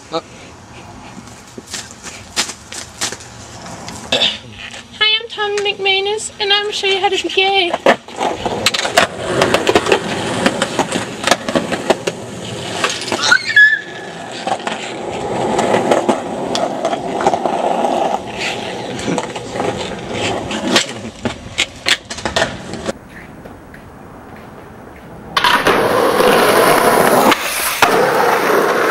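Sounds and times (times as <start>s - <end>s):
skateboard wheels rolling on concrete: 0.0s - 28.9s
skateboard clacking on ground: 1.4s - 28.9s
high squeal: 13.1s - 14.5s.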